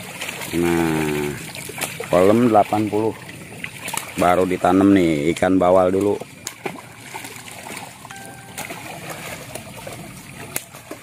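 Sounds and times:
fish slapping the water: 0:00.0 - 0:11.0
fish splashing at water surface: 0:00.0 - 0:11.0.

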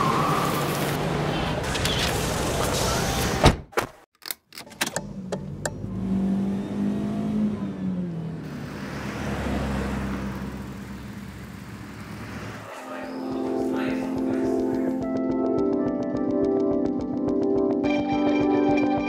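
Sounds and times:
car engine revving: 0:05.0 - 0:13.0.

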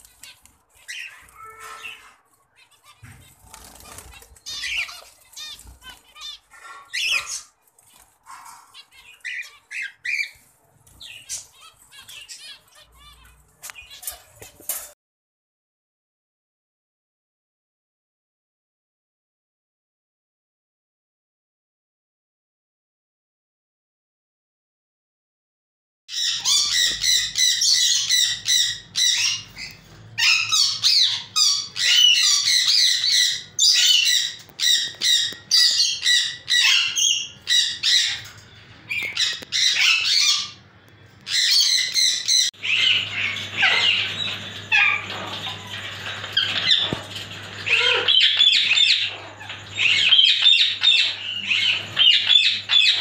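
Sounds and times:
small parrots chattering and squawking: 0:00.0 - 0:15.0, 0:26.1 - 0:53.0.

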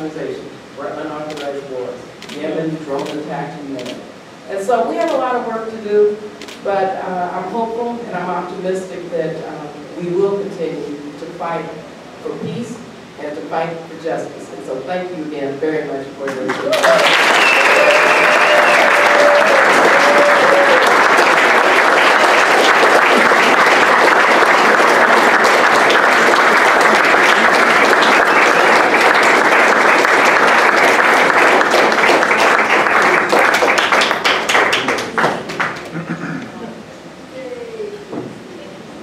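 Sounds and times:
audience applauding: 0:16.5 - 0:36.2.

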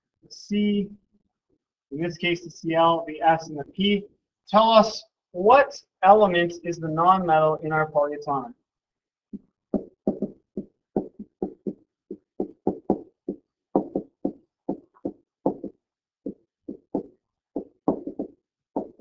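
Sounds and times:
stylus tapping on tablet screen: 0:09.3 - 0:19.0.

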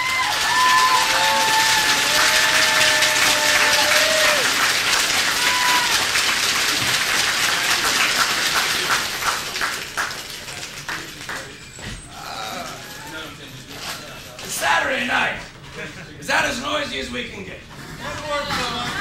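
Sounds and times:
audience clapping: 0:00.0 - 0:11.7.

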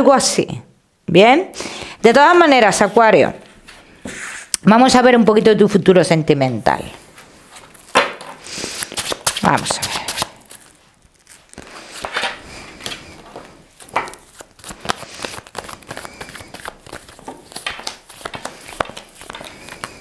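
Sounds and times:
cards being shuffled: 0:07.5 - 0:20.0.

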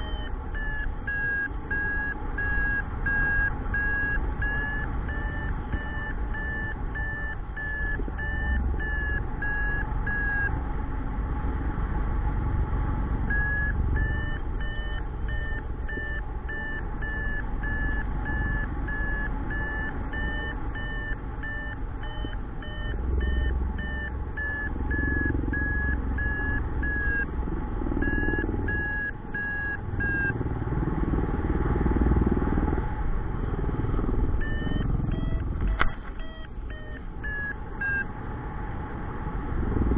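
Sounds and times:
short high beeps: 0:00.0 - 0:10.5, 0:34.4 - 0:38.0.

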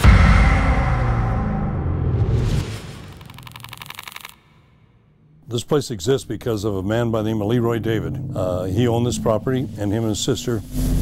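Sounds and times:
rapid mechanical clicking: 0:03.2 - 0:04.6.

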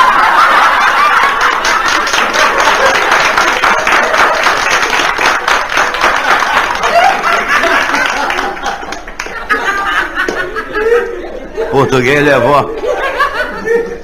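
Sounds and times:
audience laughter: 0:00.0 - 0:05.2, 0:05.8 - 0:14.0
audience applauding: 0:00.0 - 0:09.6.

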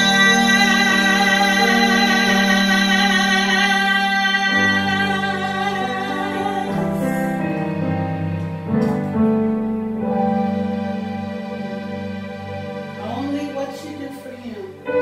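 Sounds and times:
woman singing gospel song: 0:00.0 - 0:07.4
piano chords: 0:00.0 - 0:15.0.

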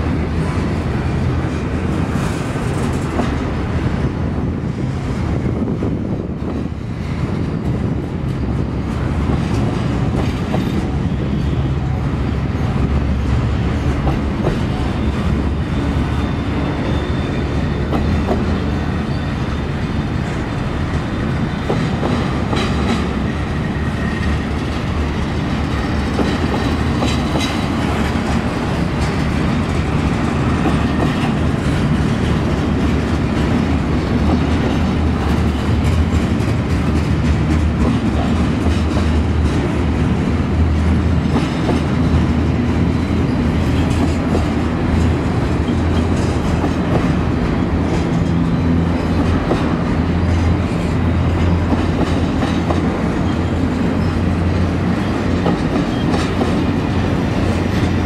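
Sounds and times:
steel wheels rumbling on rail: 0:00.0 - 0:58.0
high wheel squeal: 0:14.8 - 0:20.2.

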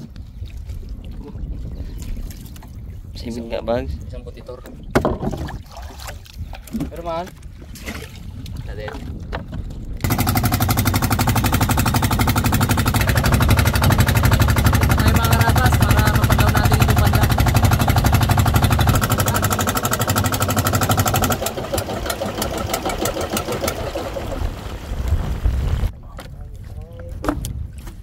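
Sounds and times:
small boat engine running: 0:10.0 - 0:25.5.

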